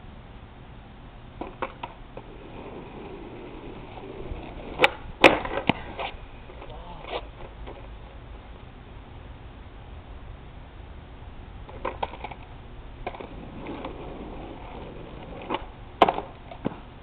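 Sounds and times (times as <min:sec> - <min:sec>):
skateboard wheels rolling on asphalt: 0:00.0 - 0:17.0
skateboard bouncing knocks: 0:01.4 - 0:06.7, 0:11.7 - 0:16.9
skateboard clattering on road: 0:01.4 - 0:08.4, 0:11.6 - 0:17.0.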